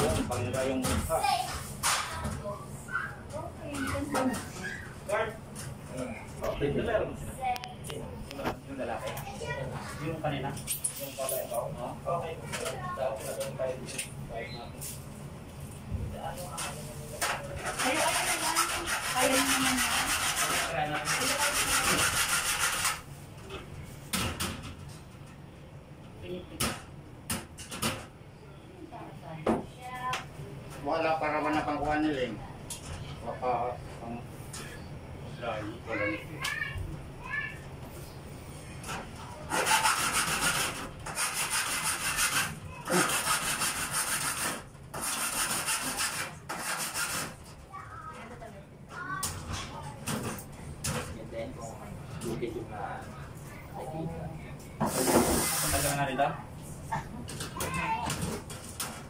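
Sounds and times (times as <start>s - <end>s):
hand saw cutting: 17.7s - 23.0s, 39.5s - 47.4s.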